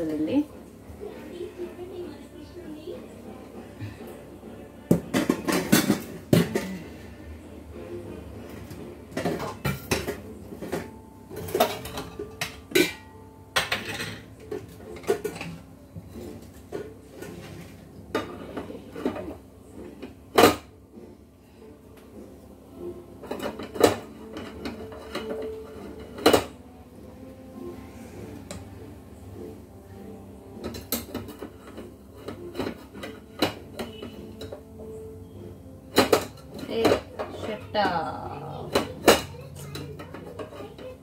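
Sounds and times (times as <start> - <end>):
metal pots and utensils clattering: 4.9 - 7.2, 8.4 - 20.8, 22.8 - 27.8, 28.4 - 41.0.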